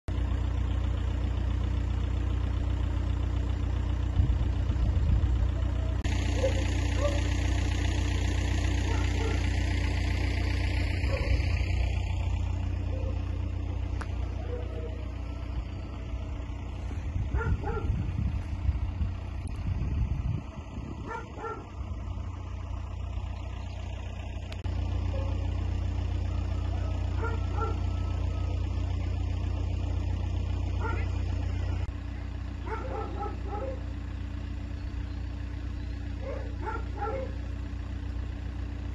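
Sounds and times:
low rumble: 3.2s - 33.2s
distant dogs barking: 5.5s - 19.3s, 20.4s - 38.3s.

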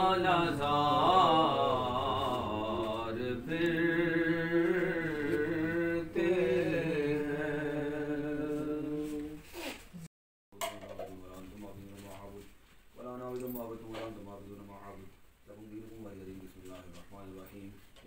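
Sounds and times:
person chanting unaccompanied: 0.0s - 9.4s.

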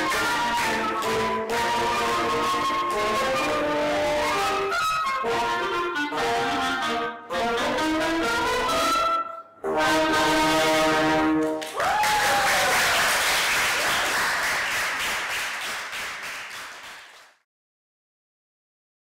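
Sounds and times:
applause: 0.0s - 1.1s, 11.4s - 17.5s
bassoon: 0.0s - 11.6s
french horn: 0.0s - 11.6s
flute: 0.0s - 12.8s.

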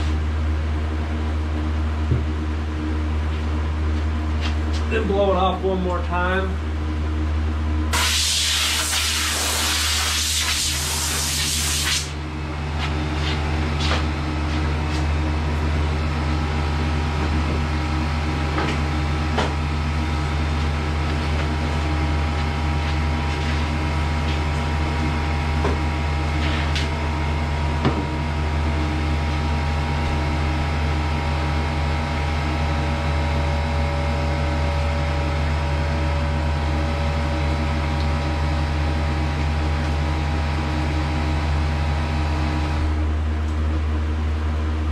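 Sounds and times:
steady machine hum: 0.0s - 44.9s
compressed air hissing from blow gun: 8.0s - 12.2s.

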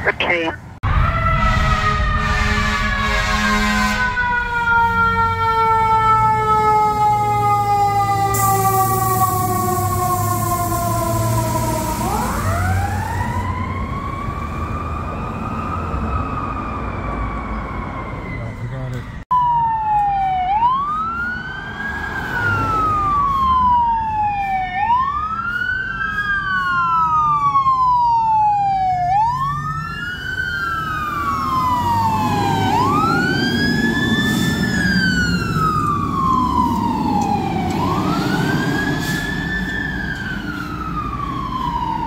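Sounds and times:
fire engine siren wailing: 0.1s - 42.0s
truck engine rumble: 20.9s - 42.0s.

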